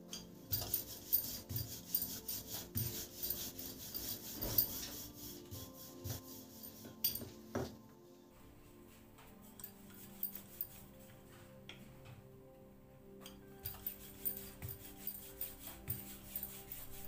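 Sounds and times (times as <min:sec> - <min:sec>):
rolling pin rolling dough: 0:00.0 - 0:07.8, 0:13.4 - 0:17.0.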